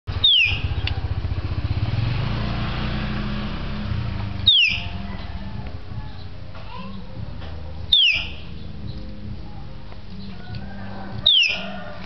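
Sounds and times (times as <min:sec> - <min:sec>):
motorcycle engine running: 0:00.1 - 0:12.0
bird whistling: 0:00.2 - 0:00.8, 0:04.4 - 0:05.0, 0:07.9 - 0:09.0, 0:11.2 - 0:11.7.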